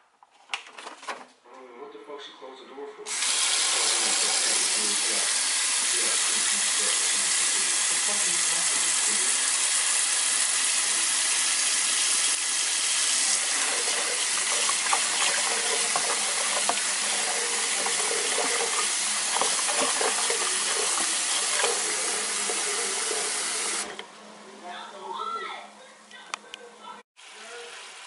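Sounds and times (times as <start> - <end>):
hand sloshing water: 13.4 - 23.9
tap water splashing into tub: 13.4 - 23.9.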